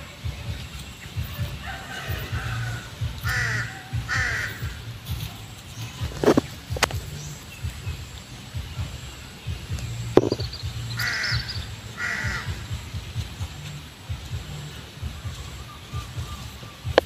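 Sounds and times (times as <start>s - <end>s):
low rumble: 0.0s - 17.0s
crow cawing: 1.6s - 4.9s, 11.0s - 12.8s
sharp knocks: 10.2s - 10.5s.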